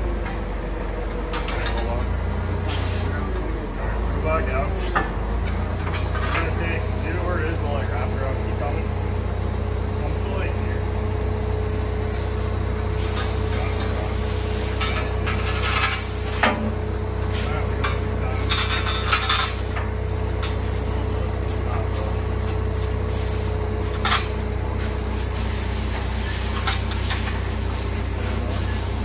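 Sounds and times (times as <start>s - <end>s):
steady low hum: 6.6s - 26.7s
chains clinking against metal: 18.5s - 23.2s.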